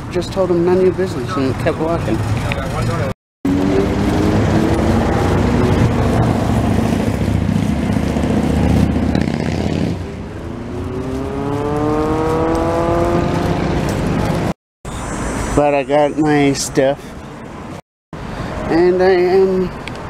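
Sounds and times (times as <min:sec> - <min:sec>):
vehicle engine running: 0:02.0 - 0:14.5
vehicle accelerating away: 0:03.5 - 0:14.6.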